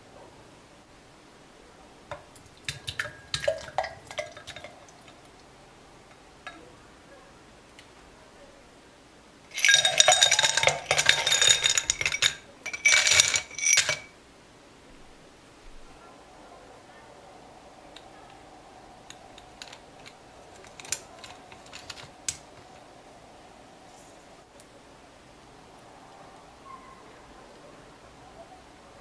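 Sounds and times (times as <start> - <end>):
ice cubes clattering into glasses: 2.6 - 5.2, 9.5 - 14.1, 19.3 - 22.8
light clinks against glass: 9.5 - 14.1, 19.1 - 22.5.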